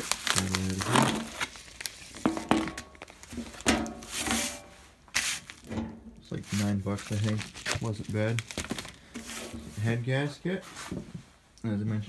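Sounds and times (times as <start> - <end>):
paper and plastic crinkling: 0.0 - 5.7, 6.3 - 10.0.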